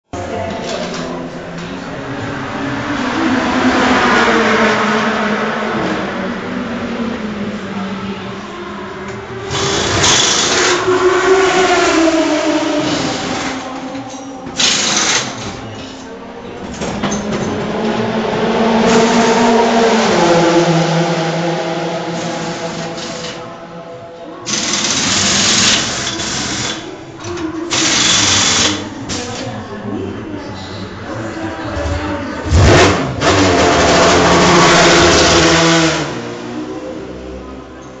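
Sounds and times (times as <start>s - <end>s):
race car engine revving hard: 1.4s - 13.9s, 16.8s - 23.8s, 31.6s - 37.6s
rushing noise: 16.8s - 26.9s
race car engine running: 30.8s - 36.9s.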